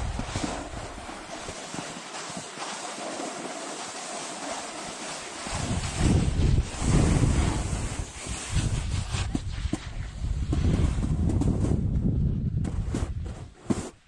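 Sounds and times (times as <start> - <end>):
wind buffeting microphone: 0.0 - 1.2, 5.5 - 13.5
skis scraping over snow: 0.0 - 11.9, 12.6 - 14.0.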